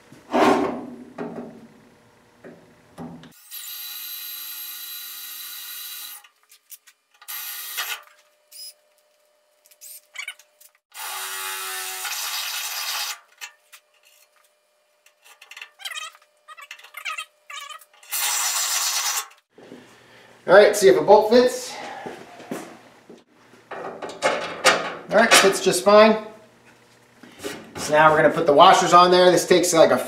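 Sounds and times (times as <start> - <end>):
cordless drill boring metal: 10.9 - 13.2, 18.0 - 19.4.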